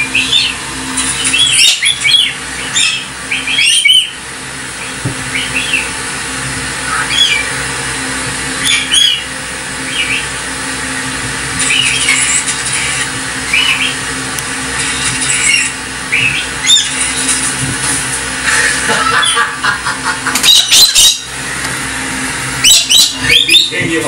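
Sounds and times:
cockatoo calling: 0.0s - 4.2s, 4.8s - 6.0s, 6.7s - 7.8s, 8.5s - 10.4s, 11.6s - 14.1s, 14.9s - 17.3s, 18.5s - 21.4s, 22.6s - 23.8s
steady low hum: 0.0s - 24.0s.

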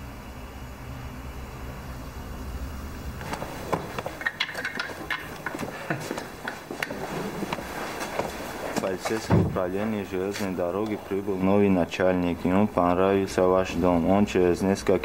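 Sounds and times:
low steady hum: 0.0s - 15.0s
irregular knocks and clicks: 3.2s - 9.7s.

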